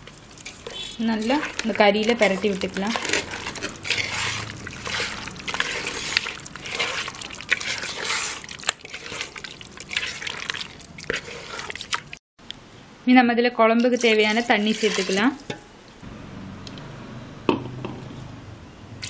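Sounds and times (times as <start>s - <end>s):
wet squelching of mixing: 0.0s - 12.2s, 13.8s - 16.0s.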